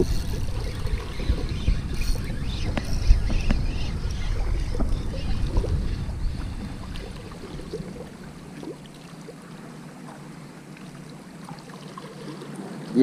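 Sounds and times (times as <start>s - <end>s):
wind rumbling on microphone: 0.0s - 8.9s.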